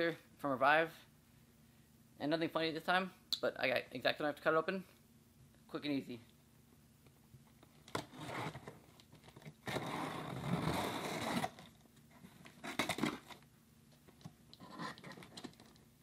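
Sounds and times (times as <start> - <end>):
tape tearing: 7.8 - 11.8, 12.4 - 13.4
knife scraping cardboard: 9.6 - 11.6
knife cutting packing tape: 9.6 - 11.7, 12.6 - 13.4.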